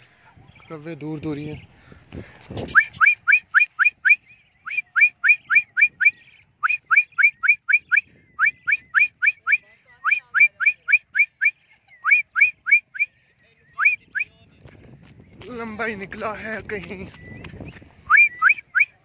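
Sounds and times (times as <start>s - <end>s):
person whistling rising notes: 2.7s - 13.1s, 17.2s - 19.0s.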